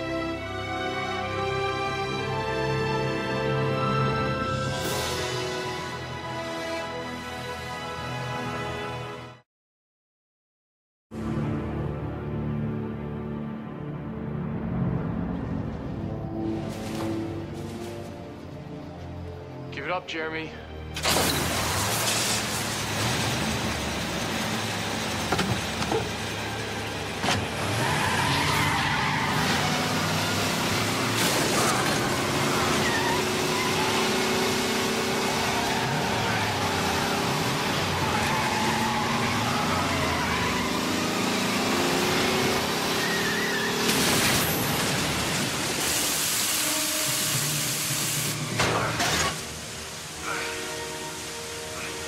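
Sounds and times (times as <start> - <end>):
tyres skidding: 20.9 - 52.0
car engine running: 22.5 - 28.2.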